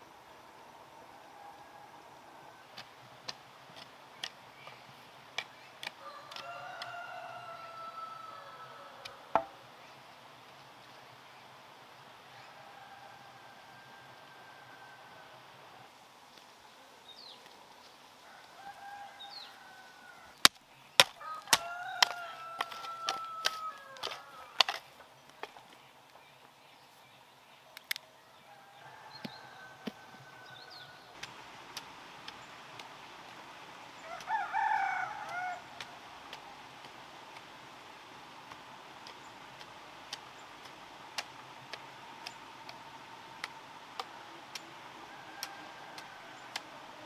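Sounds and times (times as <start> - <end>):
roosters crowing: 0.9 - 3.4, 5.8 - 9.7, 12.2 - 15.9, 18.2 - 20.4, 21.0 - 25.0, 28.2 - 47.0
sharp knocks: 9.3 - 9.6.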